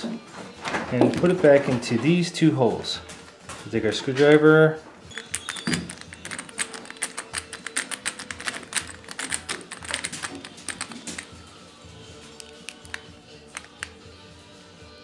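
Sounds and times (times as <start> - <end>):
screwdriver clicking: 5.2 - 11.3, 12.4 - 14.0.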